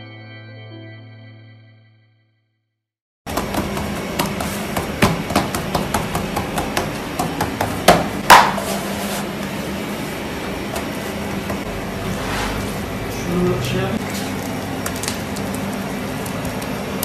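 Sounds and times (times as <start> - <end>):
fingers knocking dough: 3.3 - 8.7
dough slap: 3.3 - 8.8
steady low hum: 3.3 - 17.0.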